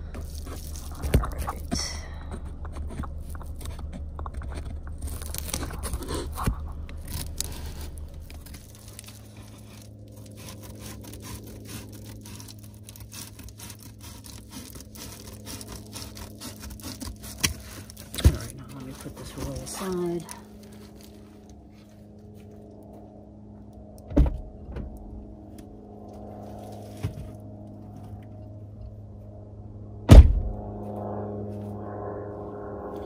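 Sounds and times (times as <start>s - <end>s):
foil rustling and crunching: 0.0s - 4.1s, 4.8s - 22.0s
low steady hum: 0.0s - 33.0s
scissors cutting foil insulation: 0.1s - 21.2s.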